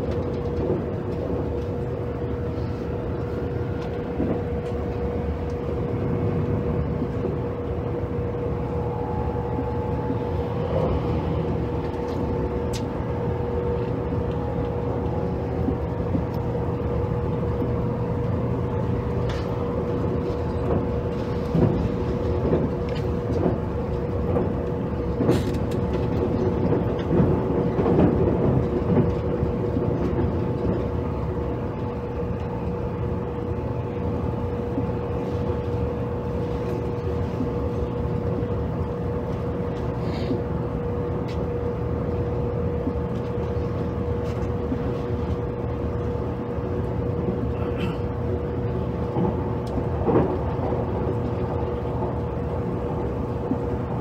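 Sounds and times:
train wheels and motors rumbling: 0:00.0 - 0:54.0
hum-like tone: 0:02.5 - 0:20.5
wheels knocking and rattling: 0:09.6 - 0:34.0, 0:48.5 - 0:54.0.

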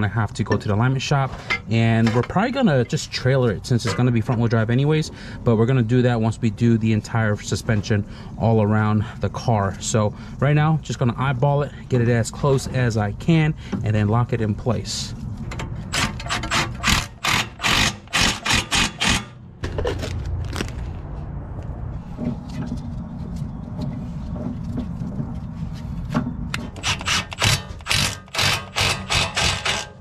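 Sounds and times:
low steady hum: 0:00.0 - 0:30.0
ratchet wrench clicking: 0:26.7 - 0:29.9.

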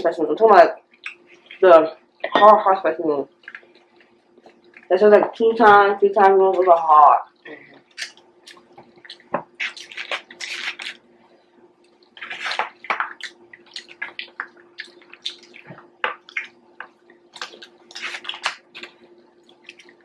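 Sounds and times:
faint steady hum: 0:00.0 - 0:20.0
people chewing and smacking: 0:00.8 - 0:02.5, 0:03.3 - 0:05.4, 0:06.4 - 0:20.0.

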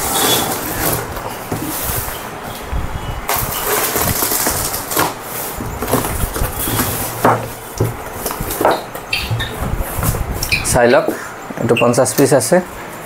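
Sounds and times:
knocks and clatters: 0:03.3 - 0:10.3
cardboard box rustling: 0:03.9 - 0:08.8.

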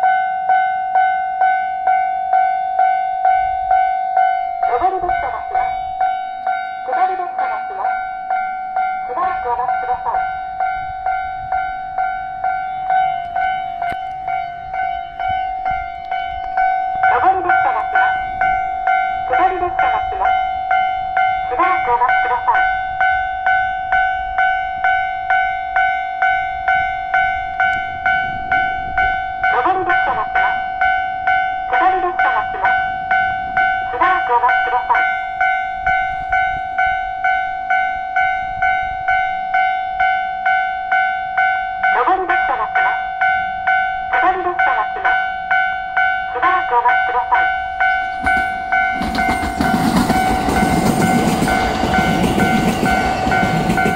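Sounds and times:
level crossing warning bell: 0:00.0 - 0:53.9
recorded voice warning: 0:04.6 - 0:05.7, 0:06.8 - 0:07.9, 0:09.1 - 0:10.2, 0:17.1 - 0:18.1, 0:19.3 - 0:20.3, 0:21.5 - 0:22.6, 0:29.5 - 0:30.5, 0:31.7 - 0:32.7, 0:33.9 - 0:35.0, 0:41.9 - 0:43.0, 0:44.1 - 0:45.2, 0:46.3 - 0:47.4
steady electronic tone: 0:07.8 - 0:19.4.

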